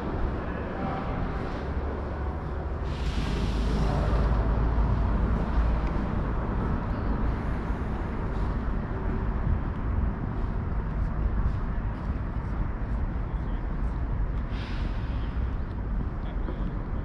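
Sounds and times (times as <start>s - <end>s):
city traffic rumble: 0.0s - 17.0s
loud hiss: 2.8s - 4.2s.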